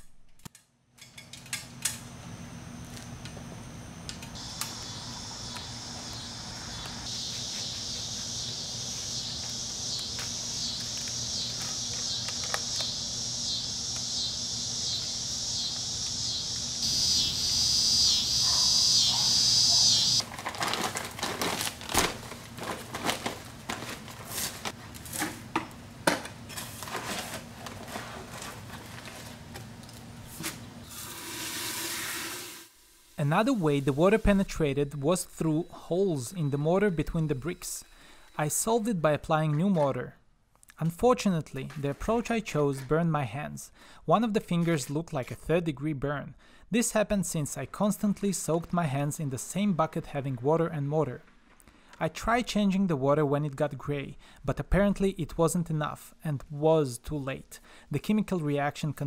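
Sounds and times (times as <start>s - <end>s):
insects buzzing: 2.1s - 20.2s, 32.9s - 38.9s
paper sack crackling and rustling: 20.2s - 25.6s, 26.4s - 30.6s.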